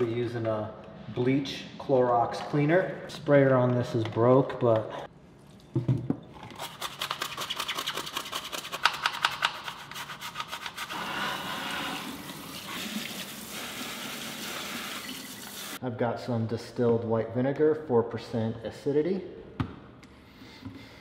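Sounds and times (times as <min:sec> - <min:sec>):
toothbrush scrubbing mesh filter: 0:06.4 - 0:12.1.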